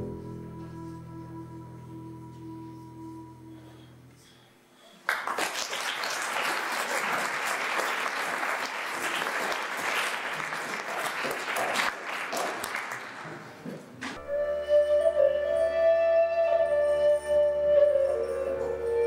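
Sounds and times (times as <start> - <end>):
audience applauding: 5.0 - 14.2.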